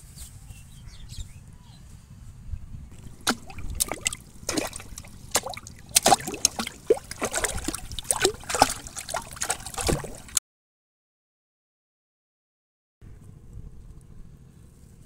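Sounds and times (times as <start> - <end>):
water splashing and gurgling: 2.9 - 10.4.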